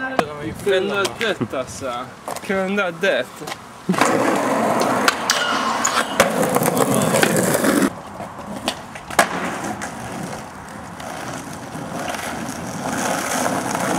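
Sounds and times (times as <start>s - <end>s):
skateboard wheels rolling on asphalt: 0.0s - 13.9s
skateboard clacking on ground: 3.4s - 13.9s.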